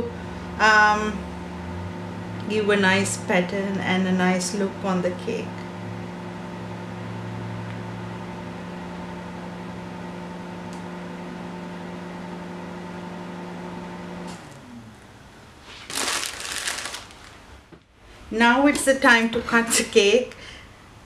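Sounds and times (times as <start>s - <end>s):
electrical appliance hum: 0.0s - 21.0s
plastic bag rustling: 15.6s - 17.7s.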